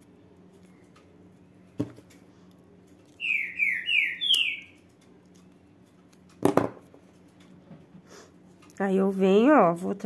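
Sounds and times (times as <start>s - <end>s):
bird chirping: 3.1s - 4.8s.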